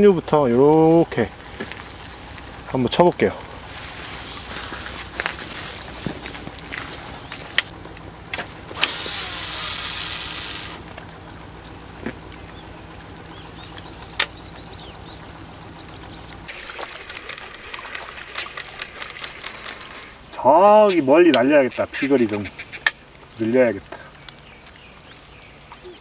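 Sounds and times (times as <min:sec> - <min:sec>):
line whirring off reel: 0:08.7 - 0:10.9.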